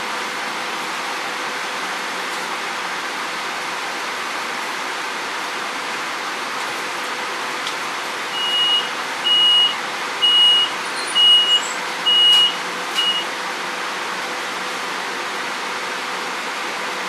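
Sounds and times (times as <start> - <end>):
high-pitched warning beeps: 8.4 - 13.3.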